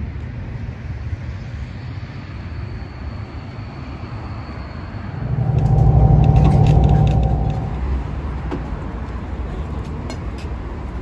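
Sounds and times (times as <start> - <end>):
faint high whine: 4.8 - 8.2
train rumbling: 5.0 - 8.6.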